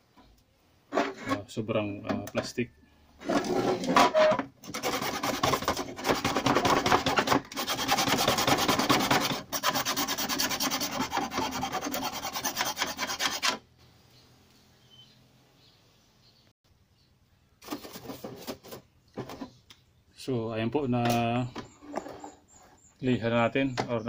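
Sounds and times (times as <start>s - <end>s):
file rasping on plastic: 4.6s - 13.6s.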